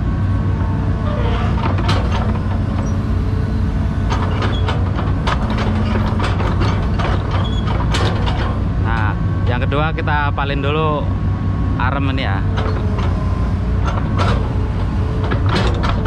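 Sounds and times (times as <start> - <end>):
diesel engine running: 0.0 - 16.0
excavator bucket knocking rattling: 4.0 - 9.1, 12.5 - 16.0.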